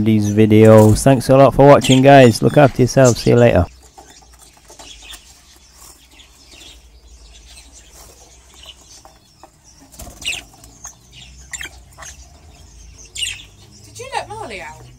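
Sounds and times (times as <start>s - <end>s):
birds fluttering wings: 7.8s - 11.0s.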